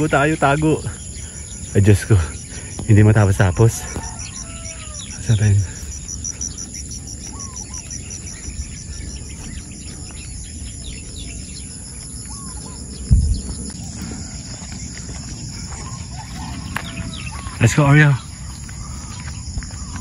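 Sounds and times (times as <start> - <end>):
high insect drone: 0.0 - 20.0
insect chirping in quick pulses: 0.0 - 20.0
low rumble: 8.4 - 16.1
loud low thump: 13.1 - 13.6.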